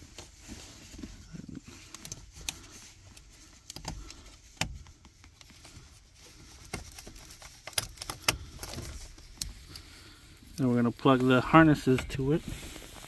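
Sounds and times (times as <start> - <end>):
plastic connector clicking and rattling: 6.6 - 9.5.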